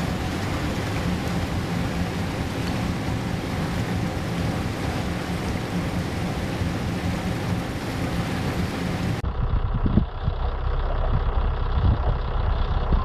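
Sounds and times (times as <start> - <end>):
rushing churning water: 0.0 - 9.2
icebreaker rumbling through ice: 0.0 - 13.0.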